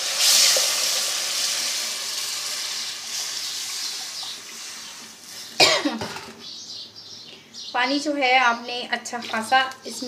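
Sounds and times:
water sizzling in hot pot: 0:00.0 - 0:05.3.

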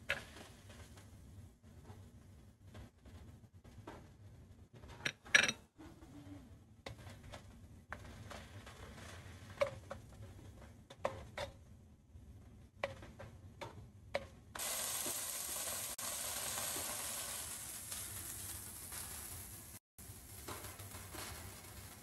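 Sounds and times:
meat sizzling in a pot: 0:14.6 - 0:22.0.

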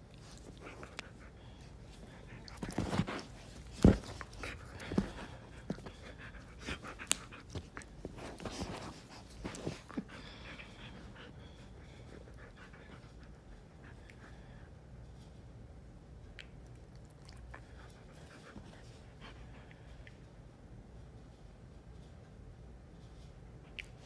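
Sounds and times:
dog panting: 0:00.1 - 0:14.7
bumps and knocks from scuffle: 0:02.6 - 0:05.9.

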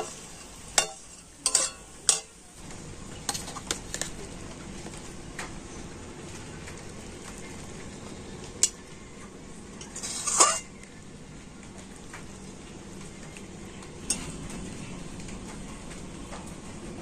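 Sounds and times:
metal spoon clinking on plate: 0:00.8 - 0:02.4.

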